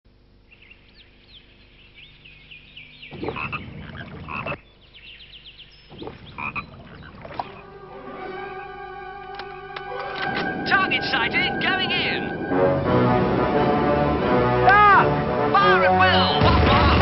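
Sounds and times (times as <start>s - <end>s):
frogs croaking: 0.1s - 8.0s.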